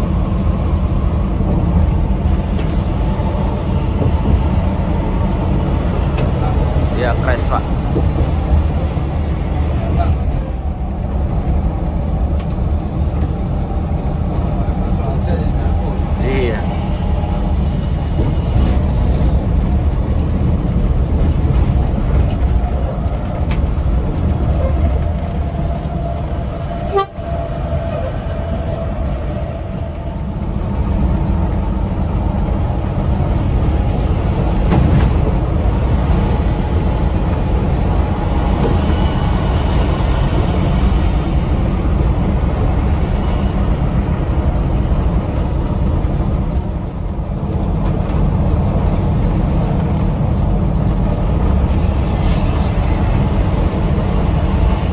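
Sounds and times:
bus engine and road rumble: 0:00.0 - 0:54.9
vehicle horn: 0:26.8 - 0:28.7.

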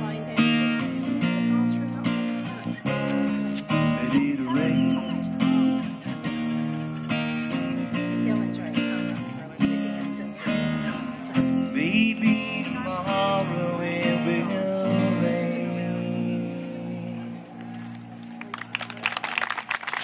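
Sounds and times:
strummed acoustic guitar: 0:00.0 - 0:18.3.

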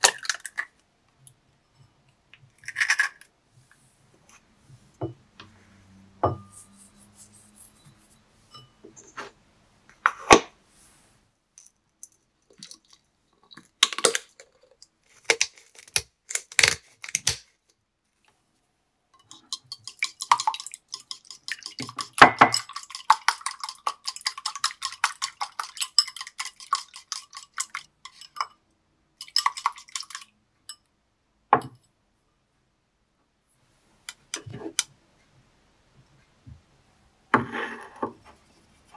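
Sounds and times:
whisk clinking in a bowl: 0:19.2 - 0:28.6, 0:29.2 - 0:30.8.

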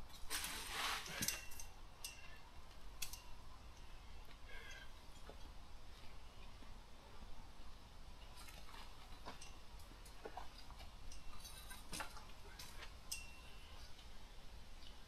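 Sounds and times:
camp gear clicks and knocks: 0:08.2 - 0:14.1.

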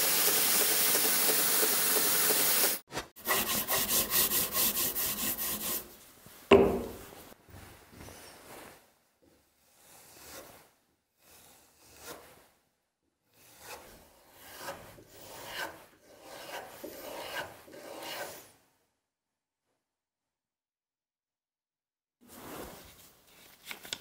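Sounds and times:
knife stropping on leather: 0:09.6 - 0:12.5.

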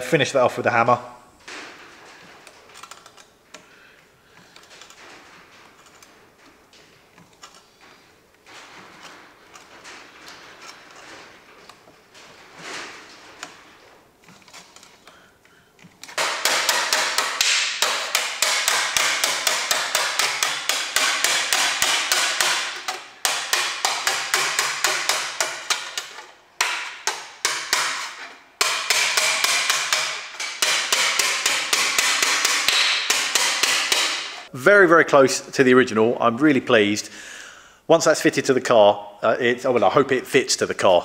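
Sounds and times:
hammer striking sheet metal: 0:16.2 - 0:34.5.

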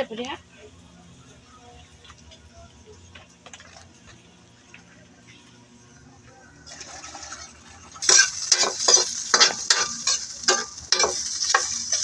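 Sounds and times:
food sizzling in hot oil: 0:06.6 - 0:12.0
utensil scraping pan: 0:06.7 - 0:12.0.

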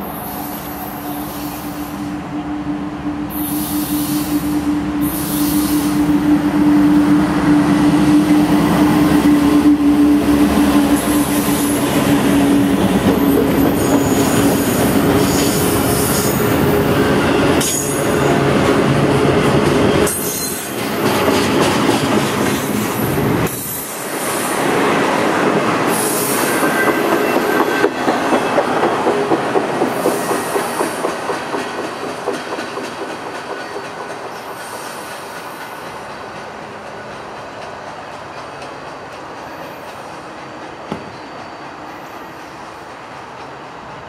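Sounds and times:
diesel locomotive drone: 0:00.0 - 0:44.0
train wheels rumbling: 0:00.0 - 0:44.0
wheel squeal: 0:40.9 - 0:42.2.

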